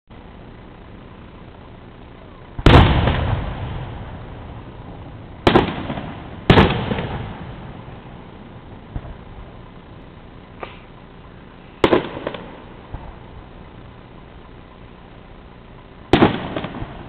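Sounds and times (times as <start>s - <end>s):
firework shells bursting: 2.5s - 8.1s, 11.6s - 13.9s, 16.1s - 17.0s.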